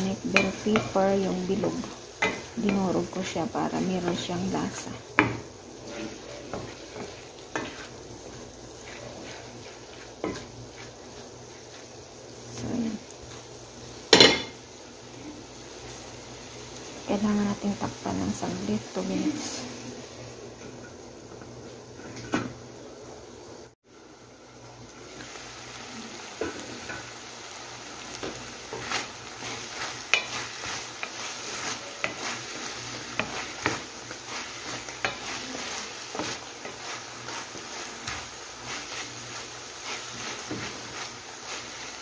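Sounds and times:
wooden spatula scraping a pan: 0:00.0 - 0:13.5, 0:28.0 - 0:42.0
food sizzling in a pan: 0:00.0 - 0:42.0.

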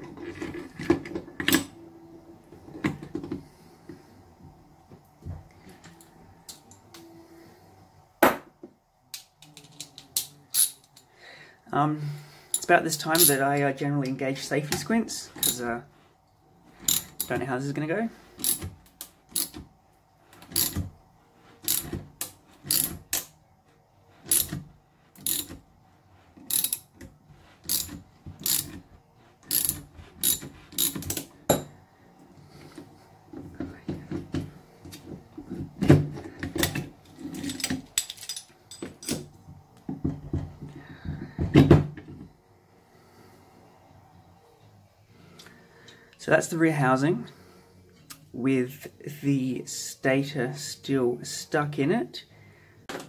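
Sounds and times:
ratchet wrench clicking: 0:18.4 - 0:19.6, 0:20.5 - 0:20.8, 0:21.7 - 0:21.9, 0:22.7 - 0:23.3, 0:24.3 - 0:24.6, 0:25.2 - 0:25.6, 0:26.5 - 0:26.9, 0:27.7 - 0:28.8, 0:29.5 - 0:31.2
metal parts knocking and clattering: 0:25.2 - 0:25.6, 0:26.5 - 0:26.9, 0:27.7 - 0:28.8, 0:36.5 - 0:39.4.

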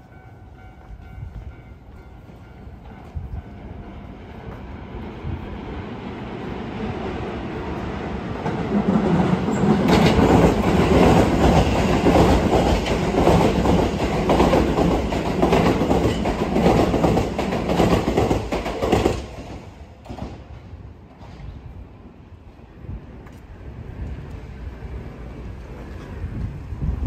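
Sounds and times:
heavy train rumble: 0:00.0 - 0:27.0
train wheels clacking over rail joints: 0:09.4 - 0:20.5.

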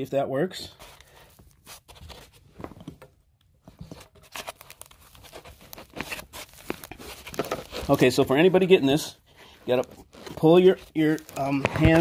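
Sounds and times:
foam rubbing and scraping: 0:05.1 - 0:12.0
small knocks and rustles: 0:05.2 - 0:08.3, 0:09.7 - 0:12.0.

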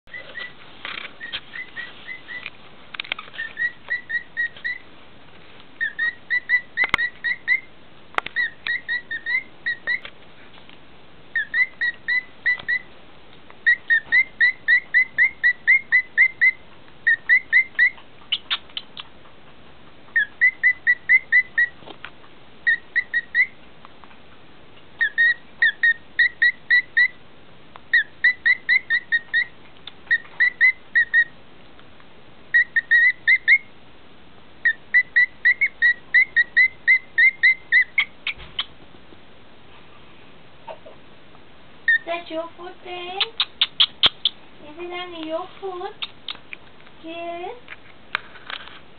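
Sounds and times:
cockatiel whistling: 0:00.1 - 0:00.6, 0:01.2 - 0:02.5, 0:03.4 - 0:04.8, 0:05.8 - 0:07.7, 0:08.4 - 0:10.1, 0:11.3 - 0:12.9, 0:13.6 - 0:19.1, 0:20.2 - 0:21.8, 0:22.6 - 0:23.6, 0:25.0 - 0:27.2, 0:27.9 - 0:29.5, 0:30.1 - 0:31.3, 0:32.5 - 0:33.7, 0:34.6 - 0:38.7, 0:41.9 - 0:42.1, 0:43.4 - 0:44.4.

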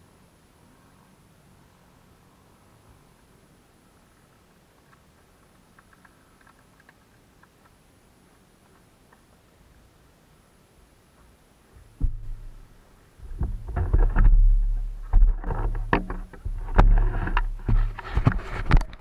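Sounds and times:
bike rattling over bumps: 0:11.7 - 0:19.0.

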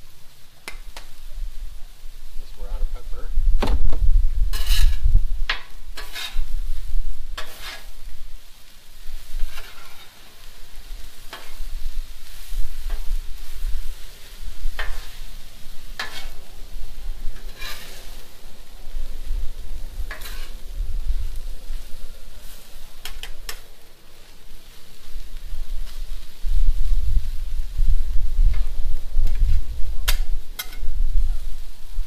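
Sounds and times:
meat sizzling: 0:00.0 - 0:32.0
metal spatula scraping griddle: 0:04.4 - 0:24.9, 0:28.4 - 0:31.0.

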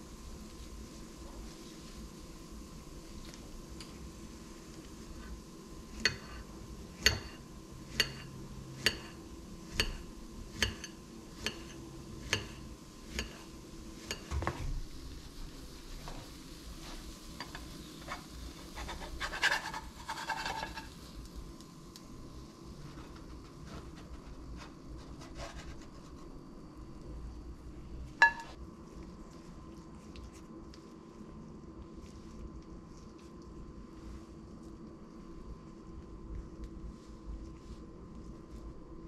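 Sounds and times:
spatula scraping frying pan: 0:16.0 - 0:21.2.

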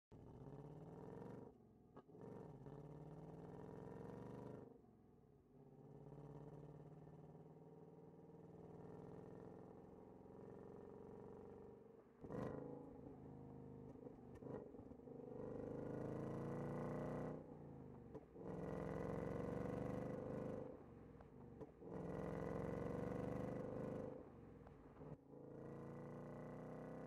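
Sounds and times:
car engine accelerating: 0:12.3 - 0:26.1.

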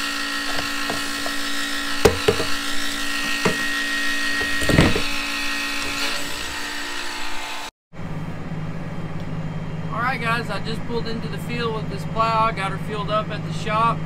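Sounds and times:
electric fuel pump whining: 0:00.0 - 0:07.7.

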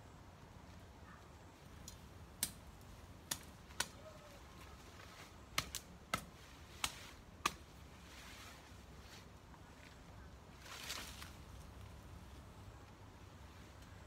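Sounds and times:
plant stems snapping: 0:01.8 - 0:02.6, 0:03.2 - 0:04.1, 0:05.5 - 0:07.6.

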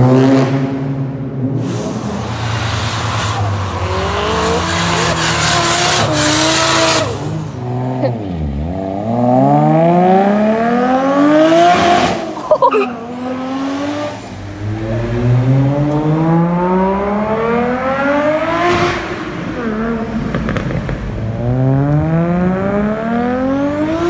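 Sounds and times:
car engines revving: 0:00.0 - 0:24.0
tyre squeal: 0:02.0 - 0:07.8.

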